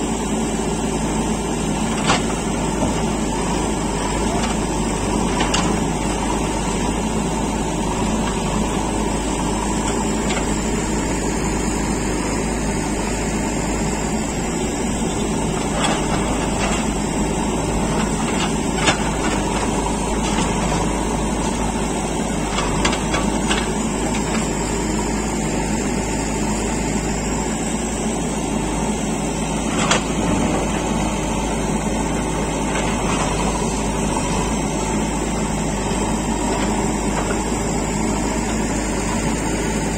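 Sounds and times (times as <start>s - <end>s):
backhoe digging: 0.0s - 39.9s
diesel engine running under load: 0.0s - 39.9s.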